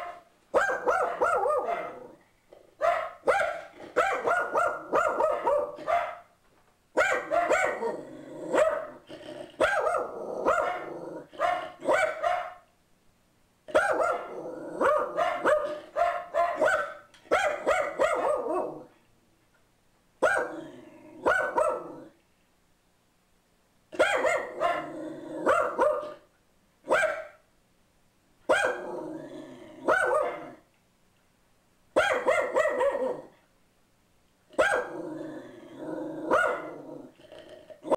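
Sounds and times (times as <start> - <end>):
dog barking rapidly: 0.0 - 2.1, 2.8 - 6.3, 7.0 - 7.9, 8.5 - 9.0, 9.6 - 12.6, 13.7 - 18.8, 20.2 - 20.6, 21.2 - 22.0, 24.0 - 26.2, 26.9 - 27.4, 28.5 - 28.9, 29.8 - 30.6, 32.0 - 33.3, 34.6 - 35.0, 36.3 - 36.8.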